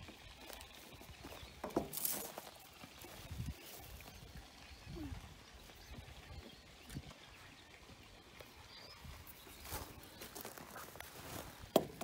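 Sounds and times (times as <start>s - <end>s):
knocks on wooden deck: 11.8s - 12.0s.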